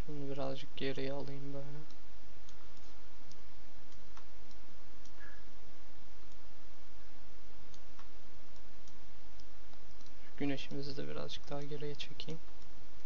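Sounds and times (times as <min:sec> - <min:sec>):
background hiss: 0:00.0 - 0:13.0
computer mouse clicks: 0:07.7 - 0:12.7.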